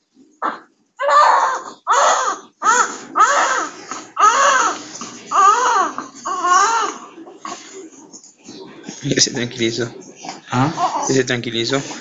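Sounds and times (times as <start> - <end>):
baby crying: 0.4 - 7.3, 10.6 - 11.3.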